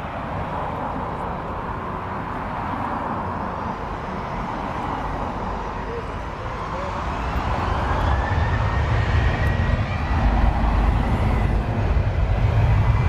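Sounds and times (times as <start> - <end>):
jet engines idling: 3.2 - 13.0.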